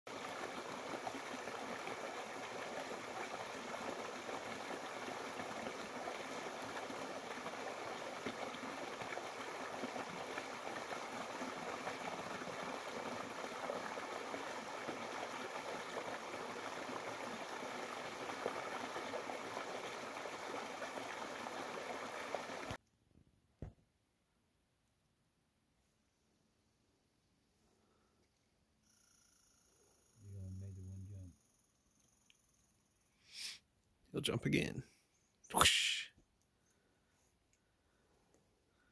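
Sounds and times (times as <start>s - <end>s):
brook running over rocks: 0.1s - 22.8s.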